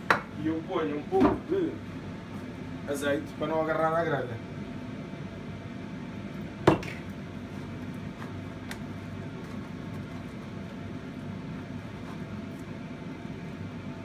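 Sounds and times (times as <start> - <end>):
steady low hum: 0.0 - 14.0
glass bottle knocking on counter: 6.7 - 6.9.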